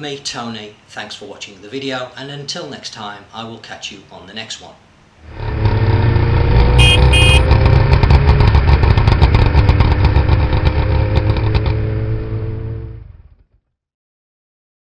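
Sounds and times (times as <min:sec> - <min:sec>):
short horn beeps: 0:06.8 - 0:07.5.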